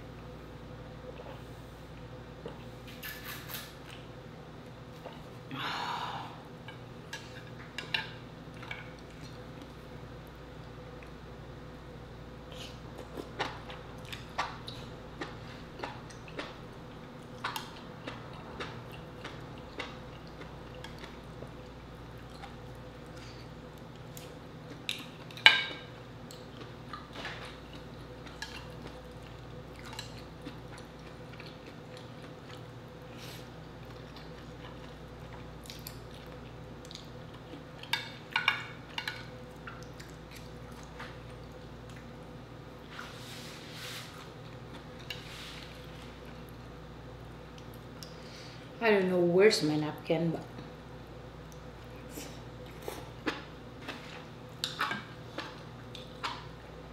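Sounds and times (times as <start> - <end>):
faint steady hum: 0.0 - 56.9
wet chewing and smacking: 12.5 - 25.5, 26.2 - 32.8, 33.7 - 42.2, 51.4 - 56.7.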